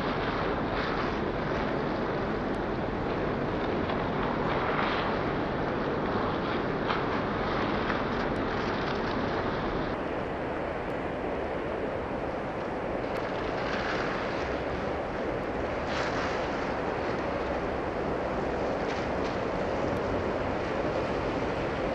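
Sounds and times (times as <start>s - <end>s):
steady rain: 0.0s - 21.9s.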